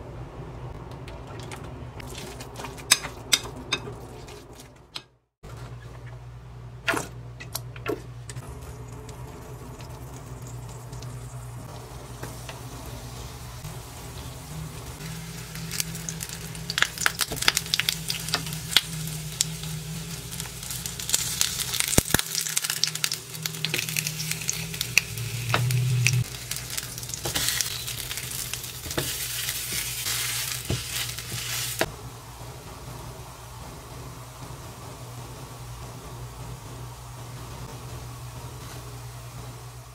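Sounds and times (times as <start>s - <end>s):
spatula scraping and tapping: 2.2s - 5.1s
patties sizzling in a pan: 8.5s - 31.9s.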